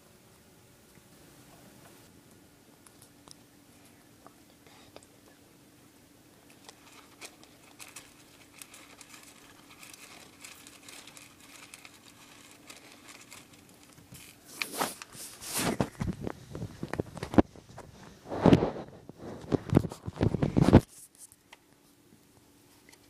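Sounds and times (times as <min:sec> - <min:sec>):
hamster rustling in paper bedding: 0:06.5 - 0:21.3.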